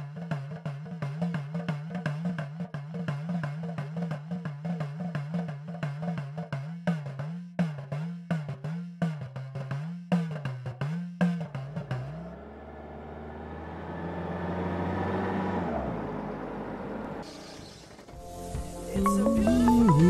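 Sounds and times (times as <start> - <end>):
rhythmic drum music: 0.0 - 12.2, 18.2 - 20.0
car driving past: 11.6 - 18.2.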